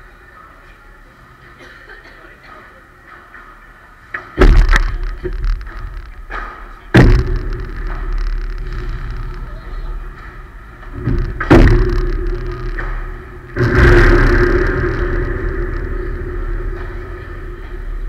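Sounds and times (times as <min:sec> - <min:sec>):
low booming echo: 0:04.4 - 0:18.0.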